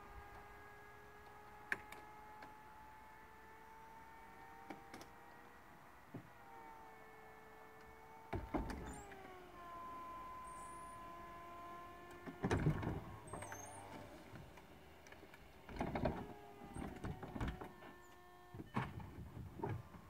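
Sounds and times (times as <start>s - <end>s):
hydraulic pump whining: 4.3s - 14.7s
roof panels clunking and latching: 7.8s - 9.4s, 12.1s - 20.0s.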